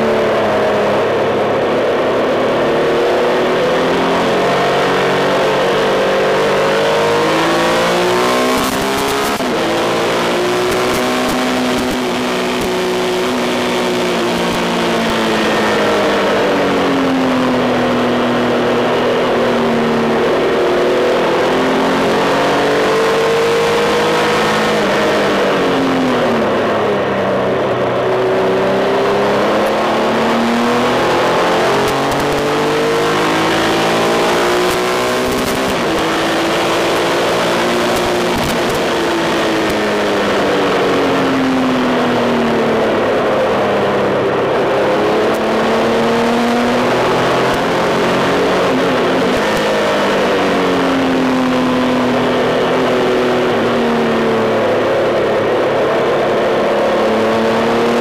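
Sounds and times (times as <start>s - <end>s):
motorcycle engine running hard: 0.0s - 58.0s.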